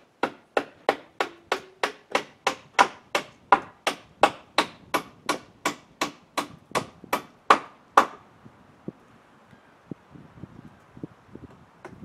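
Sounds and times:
hammer driving nails into wood: 0.2s - 8.2s.

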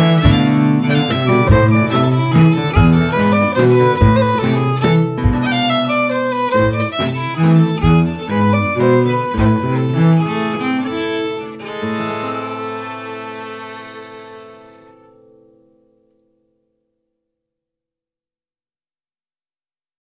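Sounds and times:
cello: 0.0s - 15.3s
violin: 0.0s - 15.4s
acoustic guitar: 0.0s - 17.1s
foot pedal thumps on wooden box: 1.1s - 5.8s.

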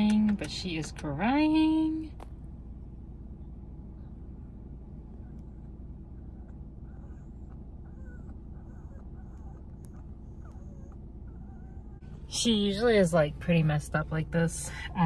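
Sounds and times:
air conditioning noise: 0.0s - 15.0s
dog whimpering: 6.2s - 12.3s.

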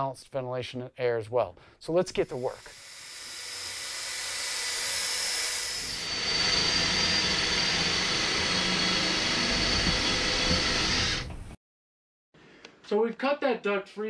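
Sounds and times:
power tool cutting sheet metal: 2.2s - 11.5s.

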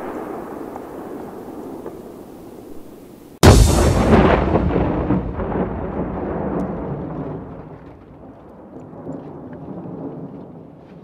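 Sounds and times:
explosion rumble: 3.4s - 9.2s.

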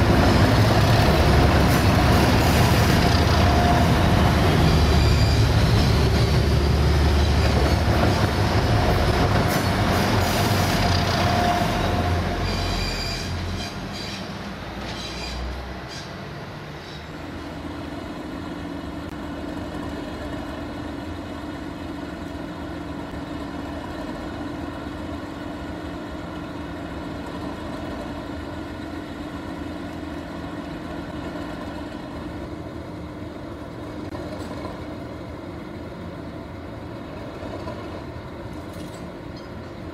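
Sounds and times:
diesel engine rumble: 0.0s - 28.2s
diesel engine drone: 0.0s - 37.3s
train wheels on rails: 0.0s - 39.9s.

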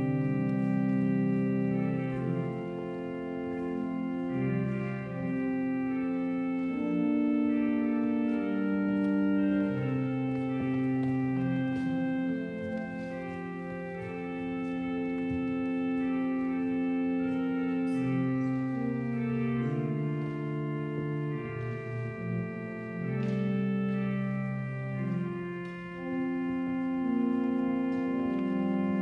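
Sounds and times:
organ playing held chords: 0.0s - 29.0s.

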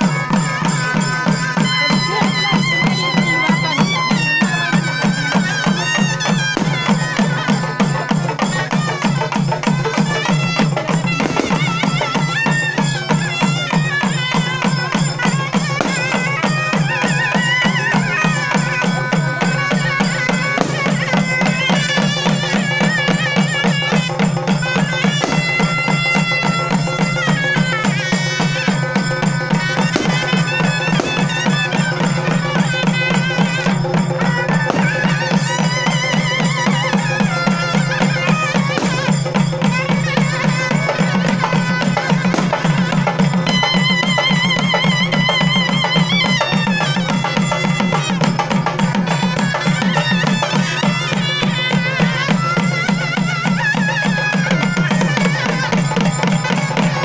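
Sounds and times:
fast drumming on barrel drums: 0.0s - 57.0s
shrill reed pipe melody: 0.0s - 57.0s.

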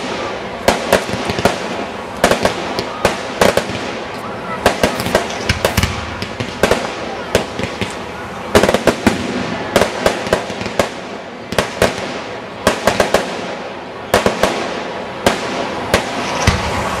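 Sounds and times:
fireworks bangs and pops: 0.0s - 17.0s
steady rushing noise: 13.2s - 17.0s.

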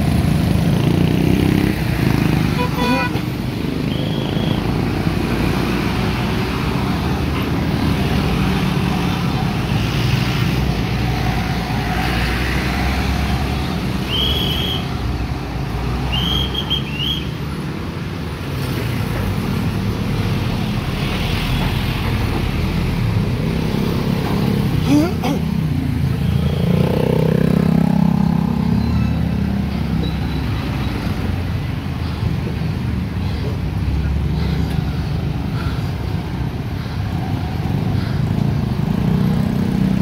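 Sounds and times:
street traffic rumble: 0.0s - 40.0s.

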